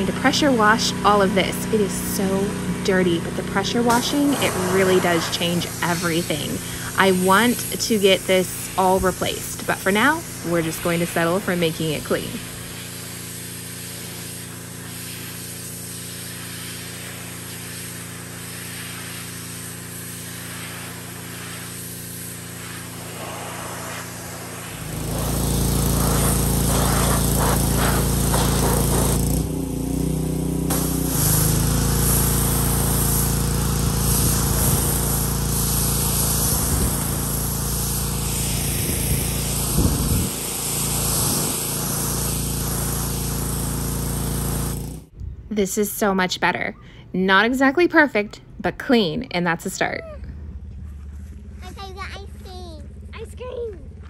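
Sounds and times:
water jet hissing on surface: 0.0 - 29.4, 30.7 - 44.9
pressure washer hum: 0.0 - 45.1.

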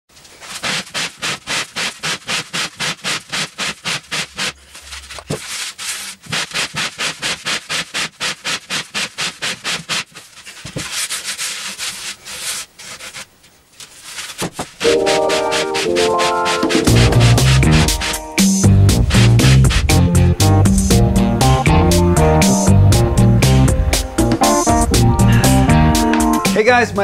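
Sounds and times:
sandpaper rubbing on a surface: 0.2 - 21.0.

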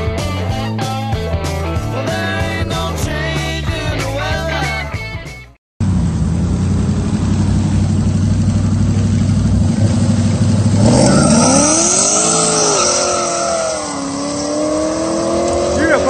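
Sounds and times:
engines idling with choppy rumble: 5.8 - 14.0
engines revving hard: 5.8 - 16.0.

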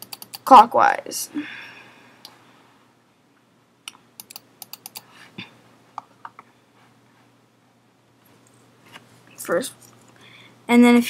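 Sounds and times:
keyboard keys clicking: 0.0 - 0.5, 4.2 - 5.0.

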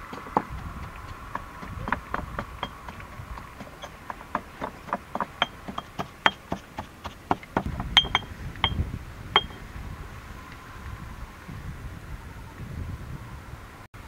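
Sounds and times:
pestle pounding in stone mortar: 0.0 - 8.8, 9.4 - 9.6.

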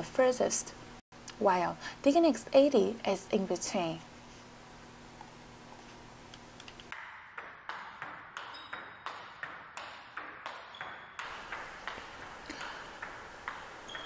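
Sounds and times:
ball clicking off paddles: 6.6 - 14.0
ball bouncing on table: 6.9 - 14.0.

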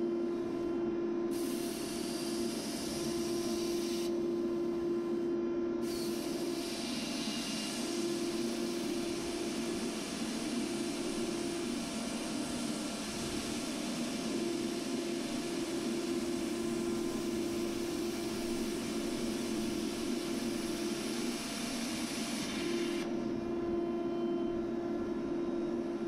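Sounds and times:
plasma cutter hissing: 1.3 - 4.1, 5.8 - 23.0.

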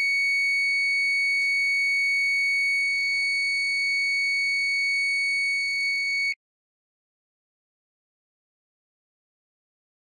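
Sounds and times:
high-pitched alarm buzzer tone: 0.0 - 6.4.

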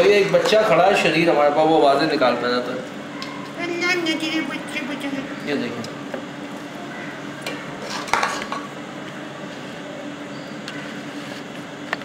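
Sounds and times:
metal spoon scraping rice: 7.8 - 8.5.

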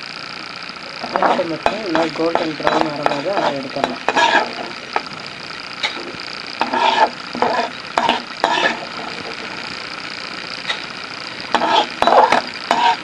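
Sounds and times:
lentils sizzling in hot oil: 0.0 - 13.0
metal spatula scraping pan: 1.1 - 5.1, 5.8 - 9.4, 11.5 - 13.0.

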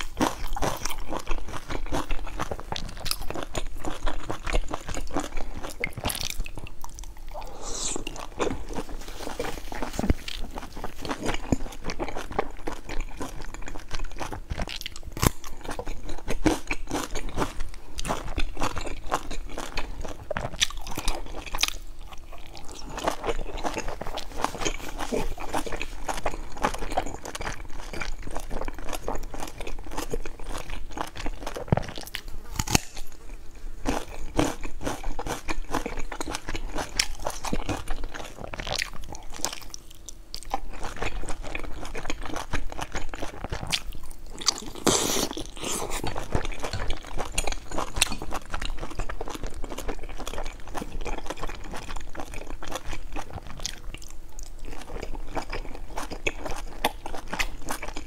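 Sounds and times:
chewing and crunching buns: 0.0 - 58.0.

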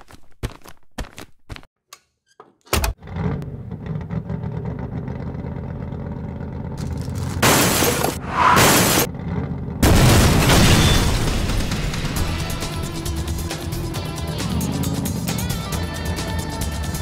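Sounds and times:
loud crash: 7.4 - 9.1, 9.8 - 12.7.

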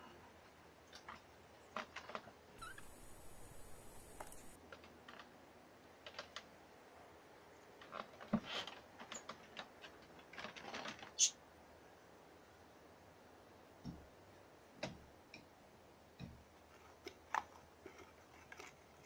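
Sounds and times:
short high-pitched squeak: 2.6 - 3.2
clicks and rustles of yarn handling: 7.7 - 11.2.

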